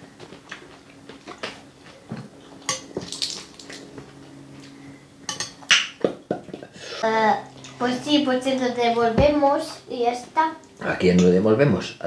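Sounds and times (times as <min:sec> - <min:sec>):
faint steady hum: 0:00.0 - 0:12.0
cutlery clinking on plates: 0:05.3 - 0:06.6.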